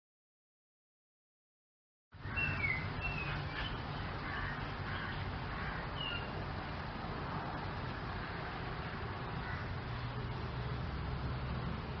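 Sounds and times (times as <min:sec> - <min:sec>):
bird chirps: 0:02.2 - 0:04.1, 0:06.0 - 0:06.3.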